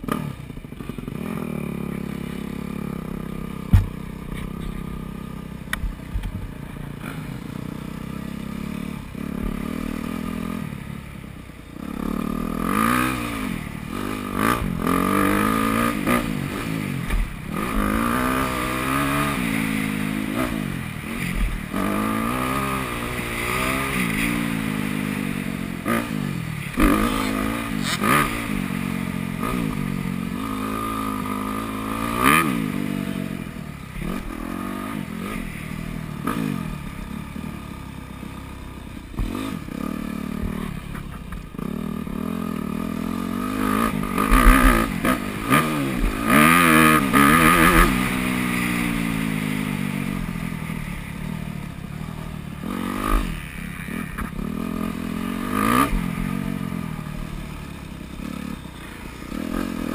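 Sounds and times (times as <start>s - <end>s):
sharp knocks: 3.7s - 4.0s
motocross engine revving: 11.8s - 37.6s, 38.2s - 59.9s.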